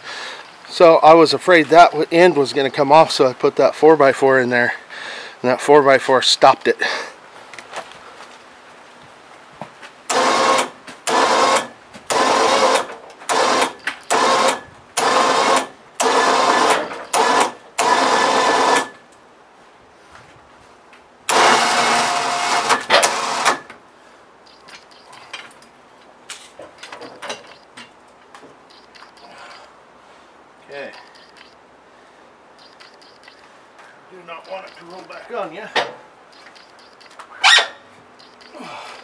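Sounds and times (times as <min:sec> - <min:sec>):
electric winch motor whining: 0:10.1 - 0:18.9, 0:21.3 - 0:23.7.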